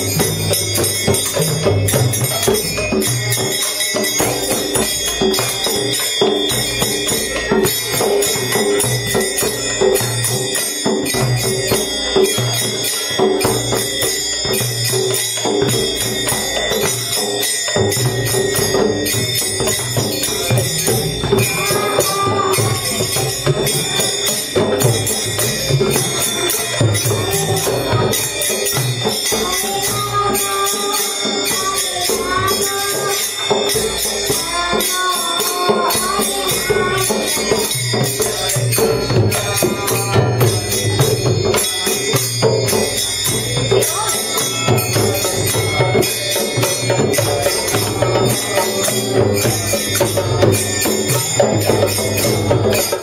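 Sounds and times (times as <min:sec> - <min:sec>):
hand cymbals clashing: 0:00.0 - 0:53.0
hand drums drumming: 0:00.0 - 0:53.0
boy singing through microphone: 0:15.4 - 0:53.0.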